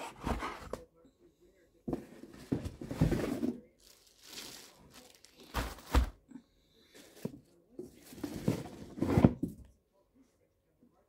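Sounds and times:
cardboard rustling: 0:01.9 - 0:06.2
plastic packaging crinkling: 0:03.8 - 0:06.0.

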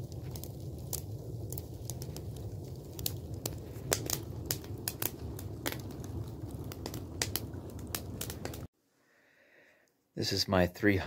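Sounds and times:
fire low rumble: 0:00.0 - 0:08.7
wood fire crackling and popping: 0:00.0 - 0:08.7.

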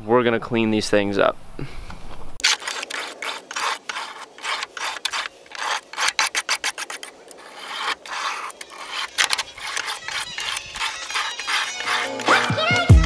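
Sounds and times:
knife strokes on sharpener: 0:02.4 - 0:12.6.

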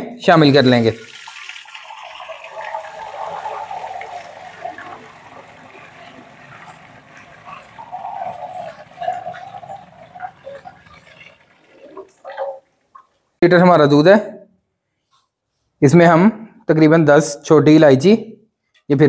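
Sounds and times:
milk pouring into a pot: 0:00.6 - 0:13.1.

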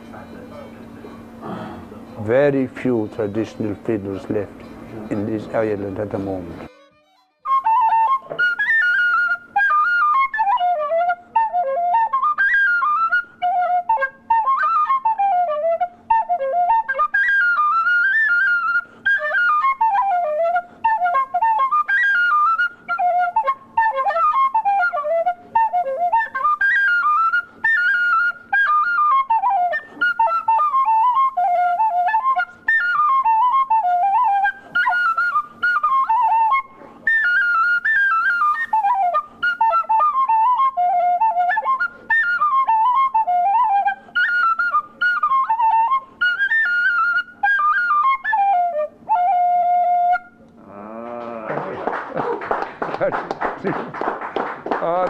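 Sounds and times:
player breathing: 0:01.4 - 0:02.0
tin whistle melody: 0:07.0 - 0:50.6.

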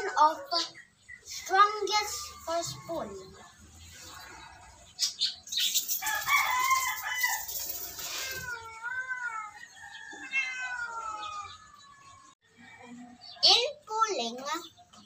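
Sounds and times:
animal crying: 0:07.4 - 0:12.3.

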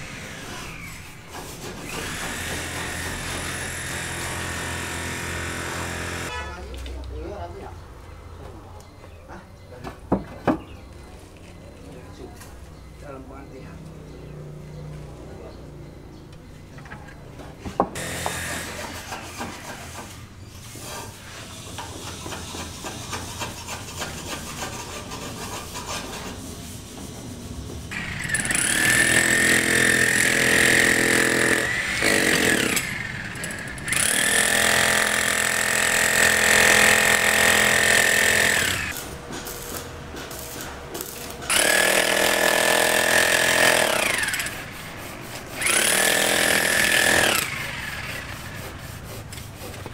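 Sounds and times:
building site noise: 0:00.0 - 0:49.9
power tool motor running: 0:01.8 - 0:06.3, 0:18.0 - 0:18.7, 0:27.9 - 0:39.0, 0:41.5 - 0:48.6.

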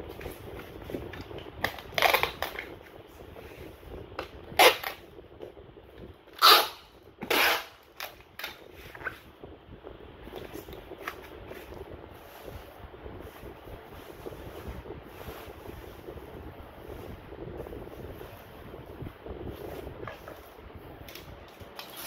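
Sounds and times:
packing tape ripping off dispenser: 0:01.6 - 0:02.8, 0:04.5 - 0:05.0, 0:06.4 - 0:08.6, 0:21.1 - 0:22.0
foam sheet rustling: 0:10.2 - 0:22.0.

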